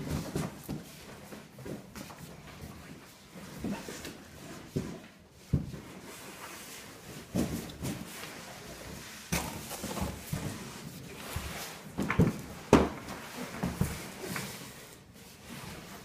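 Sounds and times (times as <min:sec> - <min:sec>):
cardboard knocks and thumps: 0:12.0 - 0:14.1.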